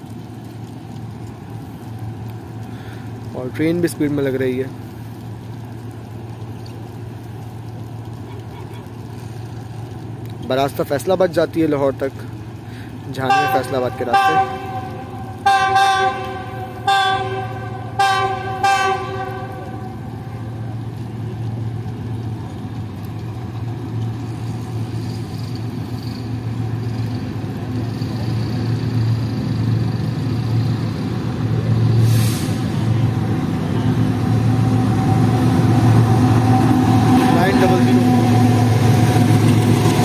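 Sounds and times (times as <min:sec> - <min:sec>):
train rumbling: 0:00.0 - 0:40.0
locomotive horn blasts: 0:13.2 - 0:20.6
brief hiss: 0:32.0 - 0:32.8.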